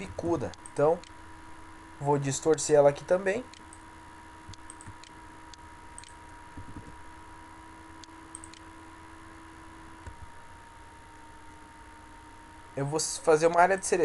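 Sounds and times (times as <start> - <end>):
electrical hum and hiss: 0.0 - 14.0
computer mouse clicks: 4.5 - 5.2, 6.0 - 6.9, 8.0 - 8.7.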